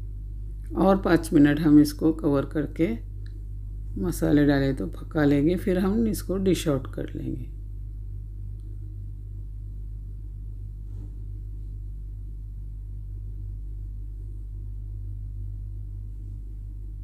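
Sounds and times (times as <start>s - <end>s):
steady low hum: 0.0s - 17.0s
faint scrape: 10.8s - 11.3s.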